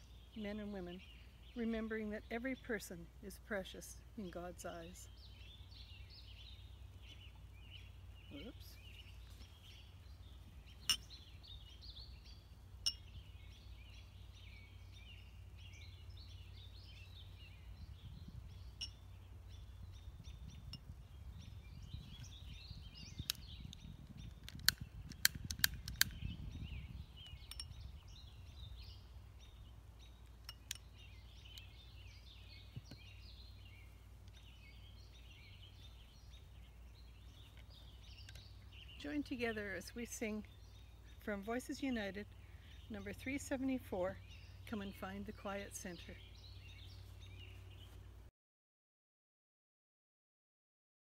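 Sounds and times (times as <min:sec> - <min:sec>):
birds singing: 0:00.0 - 0:48.2.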